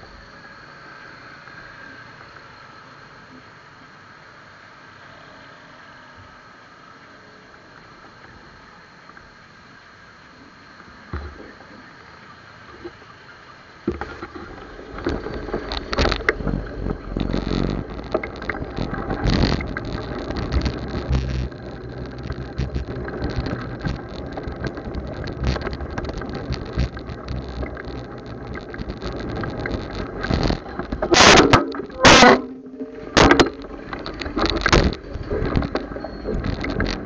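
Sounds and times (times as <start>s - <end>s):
bike knocks and rattles: 13.9s - 37.0s
road and wind rumble: 13.9s - 37.0s.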